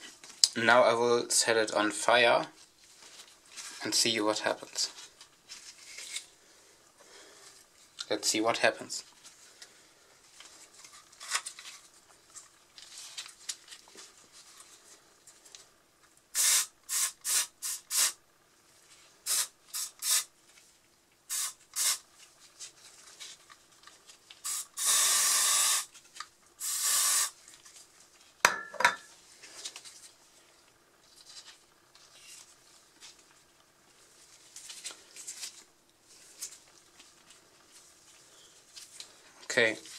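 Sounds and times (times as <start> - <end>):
aerosol can spraying: 16.3 - 18.2, 19.2 - 20.3, 21.3 - 22.0, 24.4 - 25.9, 26.6 - 27.4.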